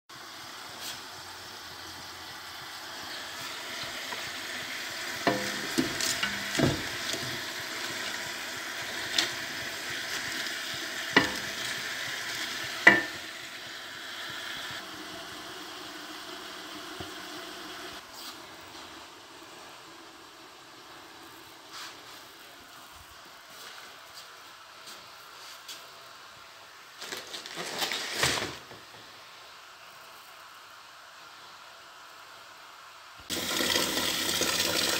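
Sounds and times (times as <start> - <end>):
cabbage sizzling in a pot: 0.1 - 34.9
wooden spoon knocking pot: 5.2 - 7.3, 12.8 - 13.2.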